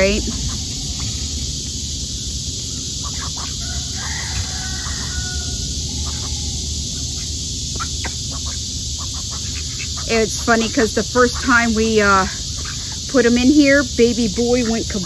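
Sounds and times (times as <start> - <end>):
rooster crowing: 0.0 - 9.4
ducks pecking grain: 0.0 - 15.0
high insect hiss: 0.0 - 15.0.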